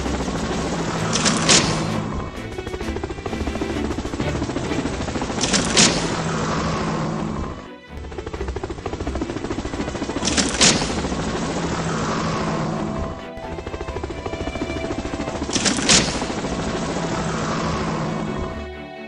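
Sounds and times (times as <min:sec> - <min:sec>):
music with fast pulsing beat: 0:00.0 - 0:06.1.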